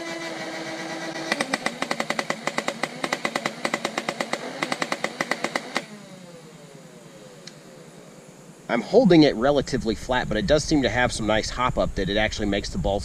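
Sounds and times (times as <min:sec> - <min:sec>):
toy blaster rapid shots: 0:00.0 - 0:06.1
flywheel motor whine: 0:00.0 - 0:08.7.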